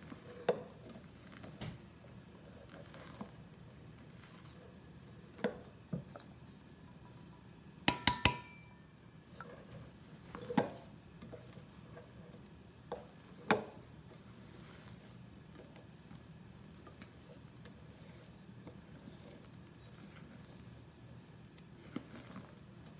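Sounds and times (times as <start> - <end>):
spatula knocking metal bowl: 7.8 - 8.8
metal bowl ringing: 7.9 - 8.8.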